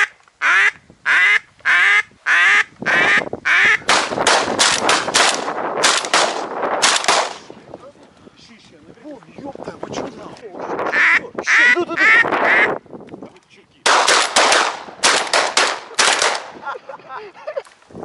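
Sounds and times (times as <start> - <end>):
duck quacking: 0.0 - 3.8, 10.9 - 12.8.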